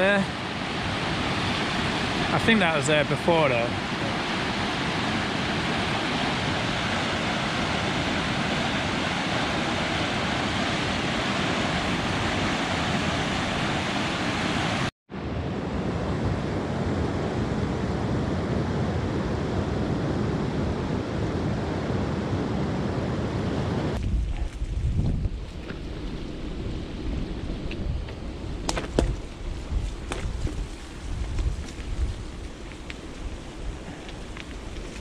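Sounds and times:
floodwater rushing over rapid: 0.0 - 14.9.

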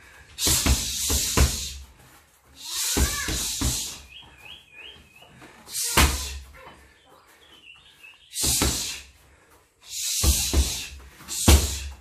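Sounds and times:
footwork thuds on foam mat: 0.4 - 4.3, 5.3 - 6.6, 8.4 - 9.1, 10.2 - 12.0
bird chirping: 3.0 - 6.0, 6.6 - 9.0.

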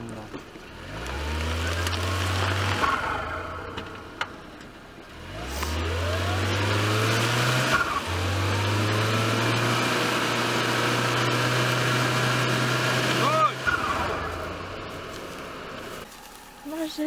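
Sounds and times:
car engine revving hard: 0.7 - 4.1, 5.1 - 16.0.

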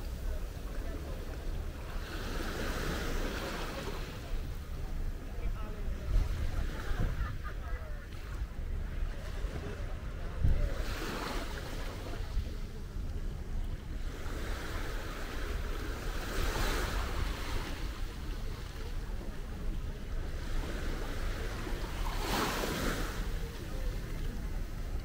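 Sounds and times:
waves washing against the shore: 0.0 - 25.0
wind buffeting the microphone: 4.3 - 25.0.

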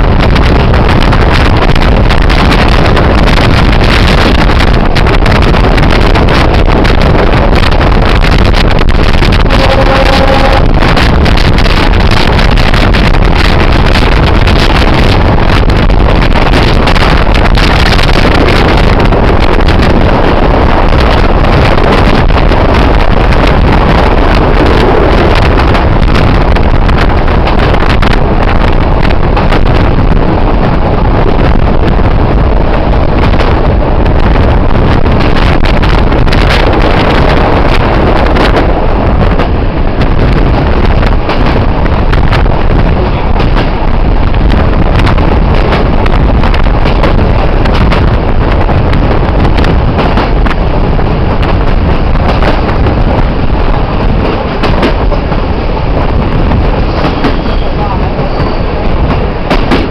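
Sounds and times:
train running on track: 0.0 - 59.9
wind buffeting microphone: 0.0 - 59.9.

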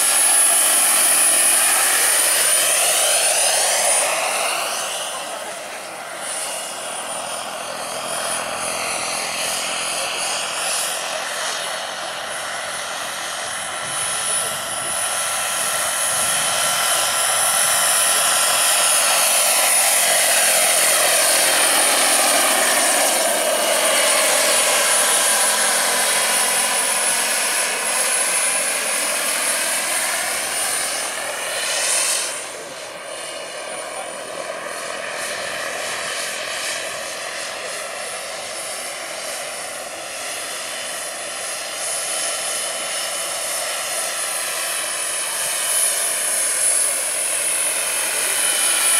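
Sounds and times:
gas turbine whine: 0.0 - 48.9
helicopter rotor noise: 0.0 - 48.9.

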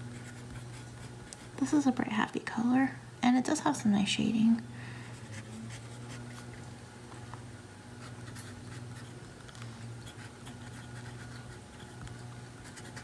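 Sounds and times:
steady low hum: 0.0 - 13.0
pen nib scratching paper: 0.1 - 1.7, 5.2 - 6.5, 8.0 - 9.2, 10.0 - 13.0.

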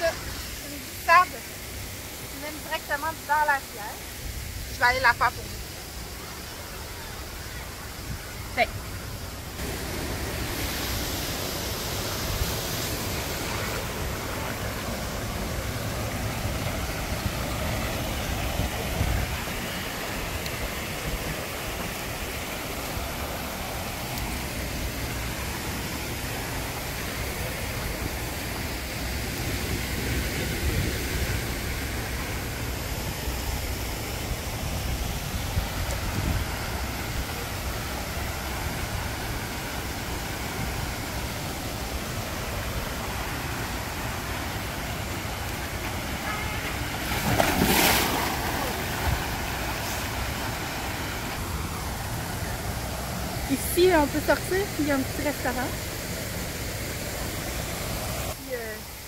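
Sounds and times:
wind buffeting the microphone: 34.3 - 37.2.

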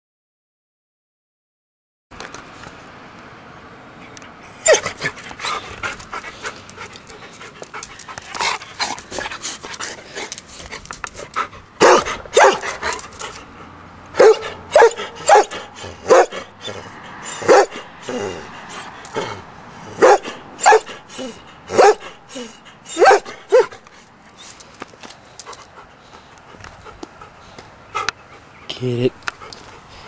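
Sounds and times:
dog panting: 4.7 - 24.1, 25.3 - 30.0
dog barking: 11.8 - 12.9, 14.2 - 16.4, 17.4 - 17.8, 20.0 - 21.0, 21.7 - 22.1, 22.9 - 23.7.

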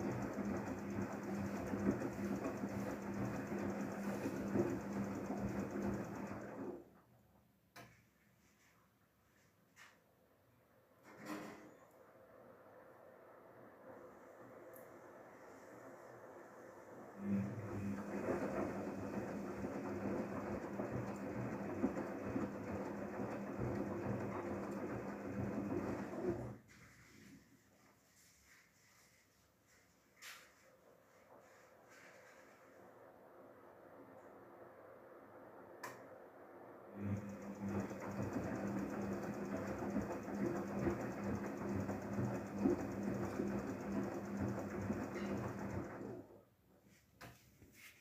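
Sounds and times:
steady motor hum: 14.2 - 26.5, 36.8 - 46.2
washing machine drum turning: 17.4 - 26.6.

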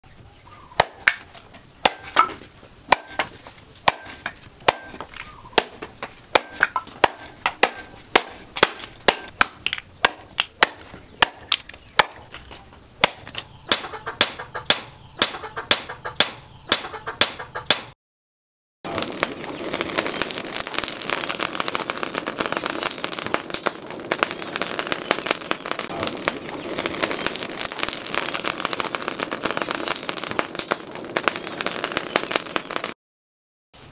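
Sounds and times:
cleaver chopping bamboo on wood: 0.8 - 17.9
crackling charcoal fire: 1.0 - 13.9, 18.9 - 33.0.

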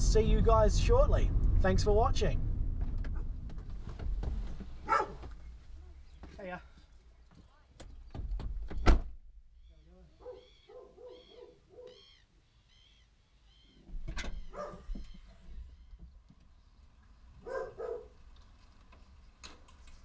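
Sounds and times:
thud: 2.3 - 5.4.

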